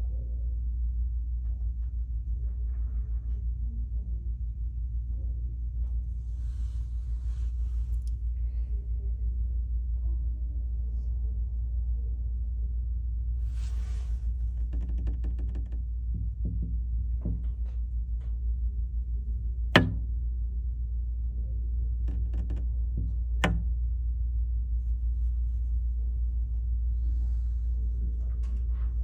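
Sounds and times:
steady low rumble: 0:00.0 - 0:29.0
sharp knocks and clicks: 0:14.5 - 0:18.4, 0:19.7 - 0:20.2, 0:22.1 - 0:23.8.

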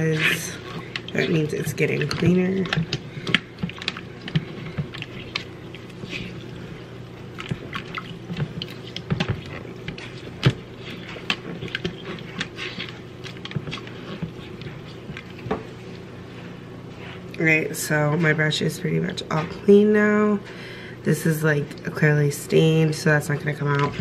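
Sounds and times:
brush splashing in water: 0:00.0 - 0:15.5
steady low hum: 0:00.0 - 0:24.0.

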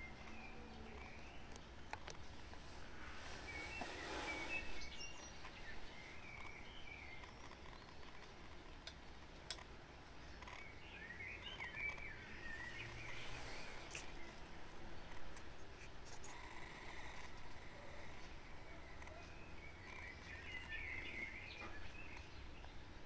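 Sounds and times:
background hiss: 0:00.0 - 0:23.0
faint bird chirping: 0:00.0 - 0:23.0
sharp clicks: 0:06.3 - 0:09.8.

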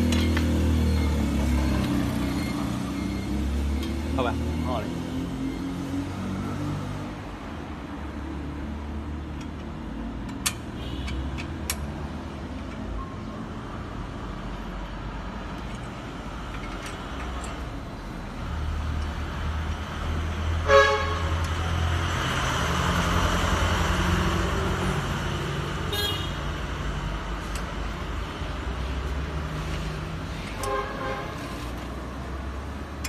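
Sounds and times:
road traffic rumble: 0:00.0 - 0:33.0
vehicle horn toot: 0:20.6 - 0:21.3, 0:25.9 - 0:26.4.

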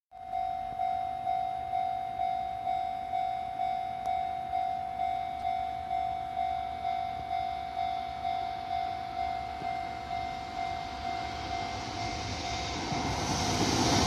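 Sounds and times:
level crossing warning bell: 0:00.1 - 0:13.3.

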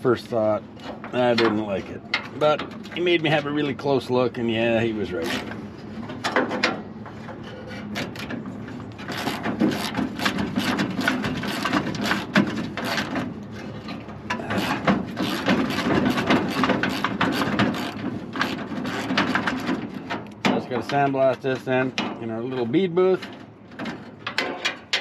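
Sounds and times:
wrench scraping rusted metal: 0:05.1 - 0:05.6, 0:07.4 - 0:25.0.

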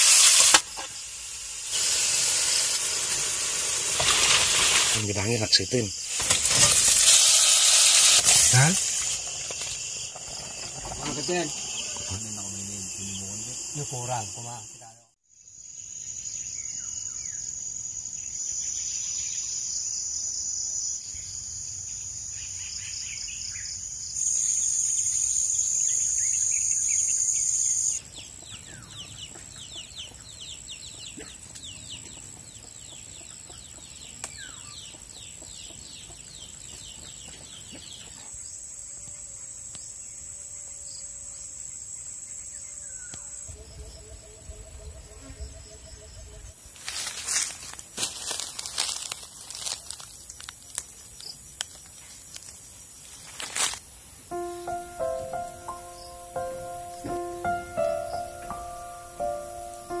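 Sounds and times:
insects shrilling drone: 0:00.0 - 1:00.0
bird calls: 0:22.5 - 0:38.4.

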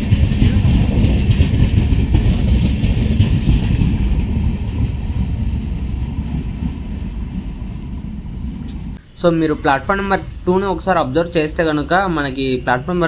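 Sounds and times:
train wheels clattering on rails: 0:00.0 - 0:09.0.

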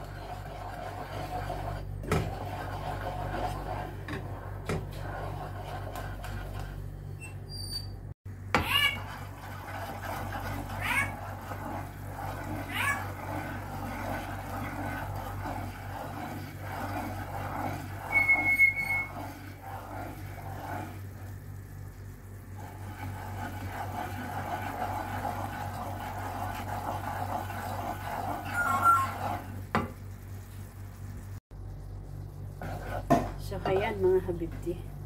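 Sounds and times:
spatula scraping pan: 0:00.0 - 0:06.9, 0:08.6 - 0:21.2, 0:22.6 - 0:29.8, 0:32.4 - 0:34.7
mixture bubbling and sizzling: 0:00.0 - 0:07.6, 0:08.2 - 0:35.0
steady low hum: 0:29.9 - 0:35.0.

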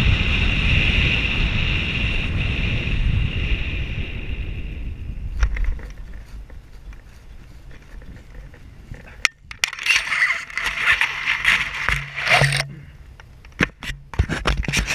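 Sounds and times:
wind on microphone: 0:00.0 - 0:12.9
rustling through dry stubble: 0:05.1 - 0:13.5.

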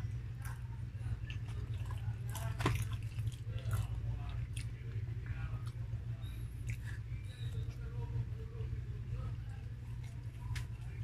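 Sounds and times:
chewing with lip smacks: 0:00.0 - 0:05.8, 0:06.4 - 0:07.9, 0:09.6 - 0:11.0
steady low hum: 0:00.0 - 0:11.0.

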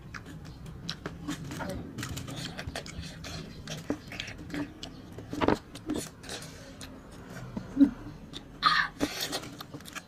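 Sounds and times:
chewing food: 0:00.0 - 0:10.0
small clicks and crunches: 0:09.0 - 0:10.0.

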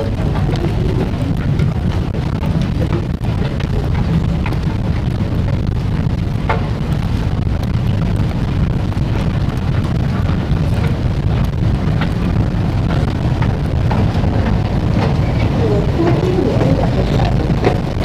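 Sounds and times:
moving walkway rumble: 0:00.0 - 0:18.0.

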